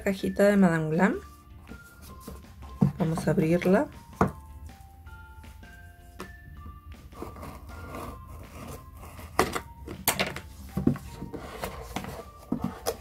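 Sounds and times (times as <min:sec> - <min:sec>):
cardboard rubbing: 0:10.8 - 0:13.0.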